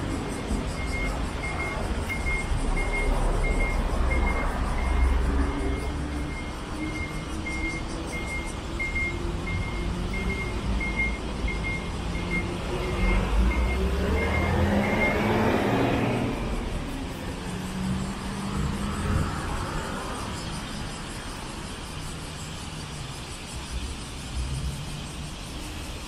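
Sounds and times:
vehicle passing: 0.0s - 20.6s
electronic warning beep: 0.2s - 15.8s.

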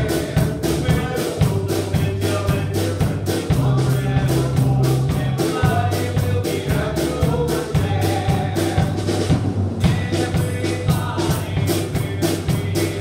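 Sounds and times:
steady drum beat: 0.0s - 13.0s.

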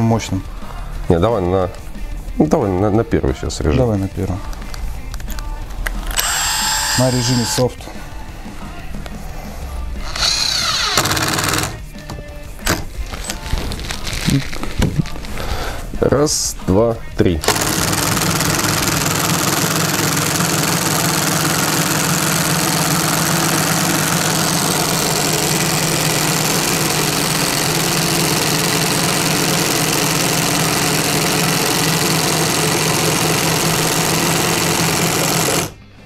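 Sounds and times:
impact drivers hammering screws: 6.1s - 7.7s, 10.1s - 11.8s, 17.4s - 35.8s.

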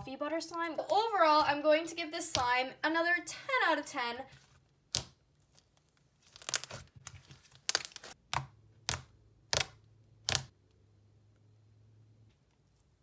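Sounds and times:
slime squishing crackles: 4.9s - 10.5s.

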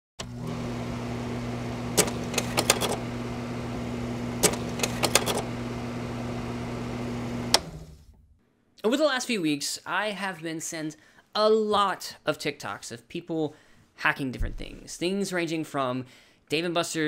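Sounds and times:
sharp clicks: 2.0s - 3.0s, 4.4s - 5.4s.

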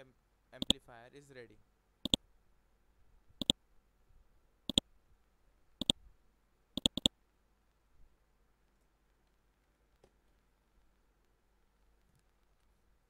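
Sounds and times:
computer mouse clicking: 0.6s - 0.8s, 6.8s - 7.1s.

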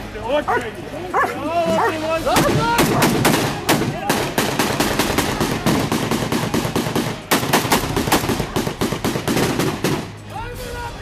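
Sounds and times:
rapid automatic gunfire: 2.4s - 10.1s.

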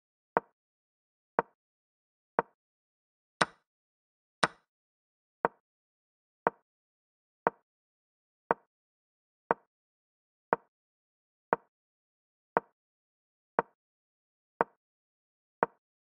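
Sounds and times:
wooden chess piece click: 3.4s - 3.6s, 4.4s - 4.6s.

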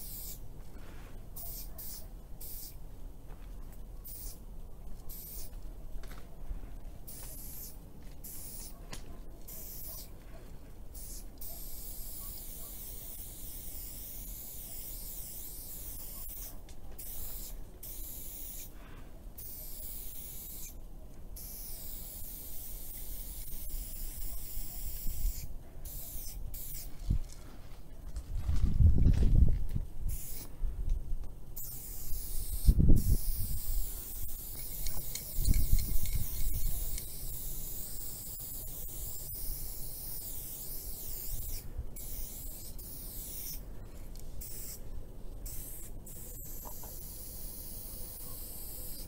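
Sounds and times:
aerosol spray can hissing: 0.0s - 0.4s, 1.4s - 2.8s, 4.1s - 4.4s, 5.1s - 5.5s, 7.1s - 8.8s, 9.4s - 10.1s, 11.0s - 18.8s, 19.4s - 20.8s, 21.4s - 27.0s, 30.1s - 30.5s, 31.6s - 43.6s, 44.4s - 44.8s, 45.4s - 49.0s.

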